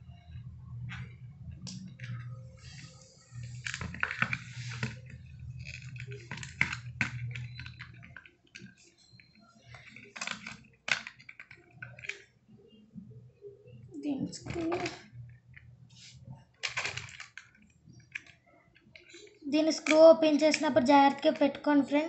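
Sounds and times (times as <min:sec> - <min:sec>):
low steady hum: 0:00.0 - 0:10.1
plastic clicks and taps: 0:19.0 - 0:21.3.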